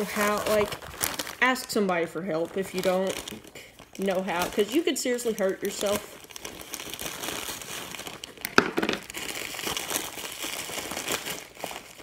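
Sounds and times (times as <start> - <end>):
bubble wrap crinkling: 0.0 - 12.0
bubble wrap pop: 8.4 - 9.3.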